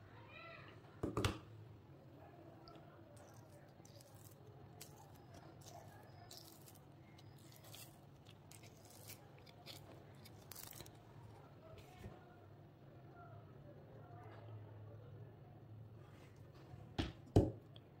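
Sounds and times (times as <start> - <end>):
silicone mold peeling crackle: 3.2 - 11.4.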